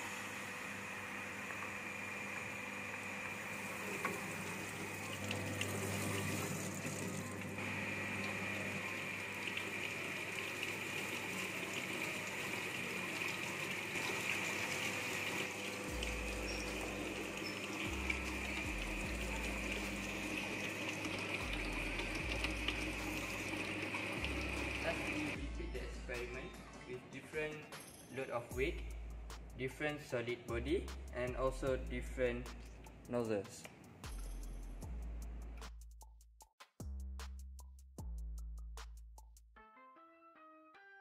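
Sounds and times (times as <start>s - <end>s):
hydraulic pump running: 1.0s - 25.4s
water rushing through pipes: 8.2s - 25.4s.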